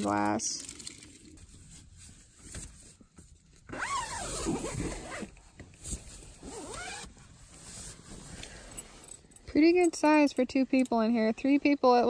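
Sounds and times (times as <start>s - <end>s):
tent zipper being pulled: 3.7s - 9.1s.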